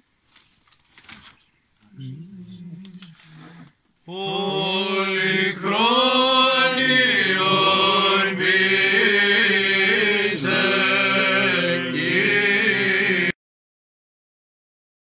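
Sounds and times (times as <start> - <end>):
men singing a chant: 4.1 - 13.4.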